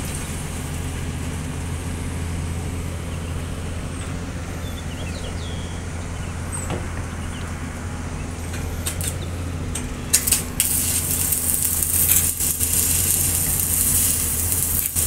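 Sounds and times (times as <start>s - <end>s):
excavator diesel engine running: 0.0s - 15.0s
strong hiss: 10.6s - 15.0s.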